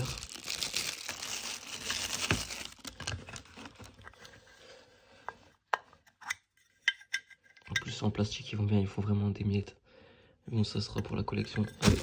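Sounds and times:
cellophane crinkling: 0.0s - 4.2s.

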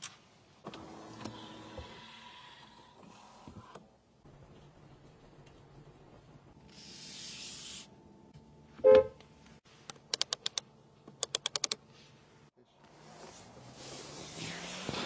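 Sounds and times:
rotary knob clicking: 10.1s - 11.8s.

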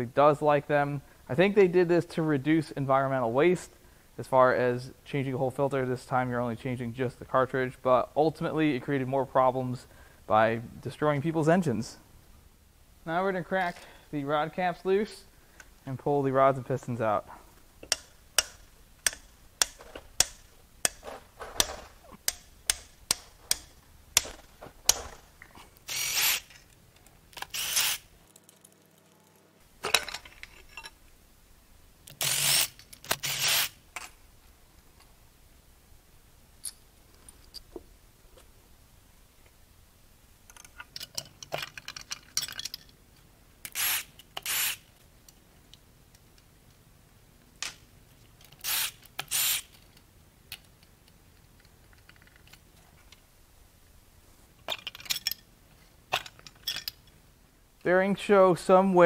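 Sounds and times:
hand ratchet clicking: 17.8s - 21.0s, 21.6s - 25.1s.

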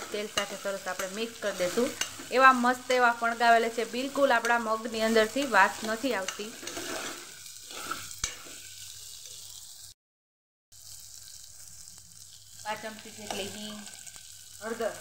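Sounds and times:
spoon clinking against pot: 0.0s - 2.3s
beans sizzling in oil: 0.0s - 10.0s, 10.7s - 15.0s.

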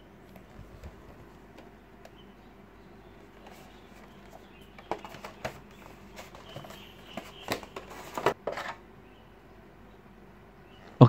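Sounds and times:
cardboard box handling: 3.4s - 8.8s.

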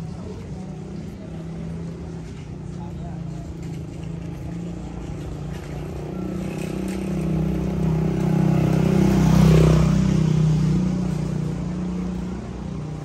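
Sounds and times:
vehicle engine passing by: 2.8s - 13.0s.

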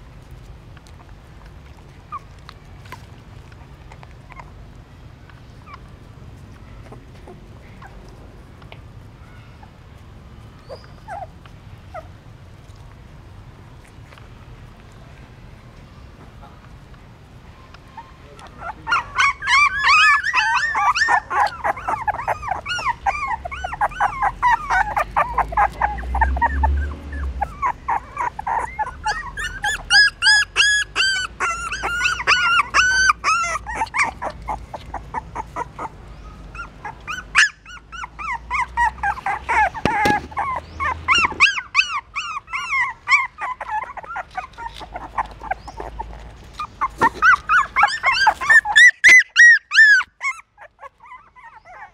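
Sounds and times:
puppies whimpering and squealing: 2.0s - 3.0s, 3.7s - 4.7s, 5.4s - 8.2s, 10.4s - 12.8s, 17.6s - 51.9s.

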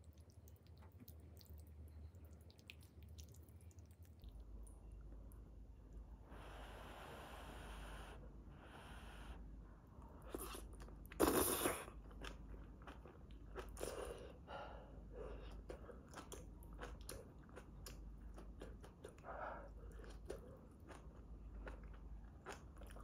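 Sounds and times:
person chewing food: 0.0s - 5.3s, 10.2s - 23.0s.

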